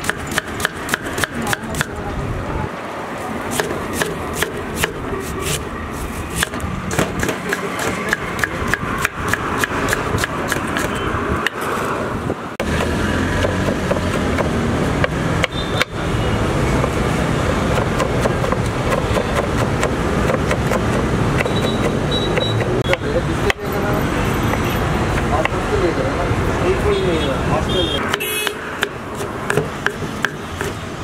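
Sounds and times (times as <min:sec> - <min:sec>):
street traffic: 0:00.0 - 0:31.0
knife chopping on wooden board: 0:03.5 - 0:05.6, 0:06.3 - 0:11.6, 0:12.6 - 0:15.5, 0:17.7 - 0:23.6, 0:28.0 - 0:30.8.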